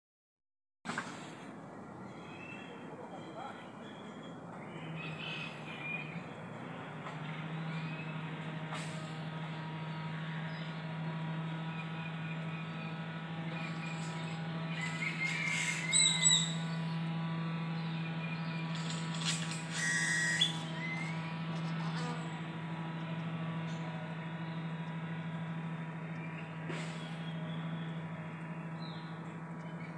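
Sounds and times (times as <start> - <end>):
bird chirps: 2.0 - 6.4, 11.6 - 17.0, 17.8 - 21.3
bees buzzing hum: 10.1 - 26.1
bird squawks: 13.5 - 16.8, 18.7 - 21.2.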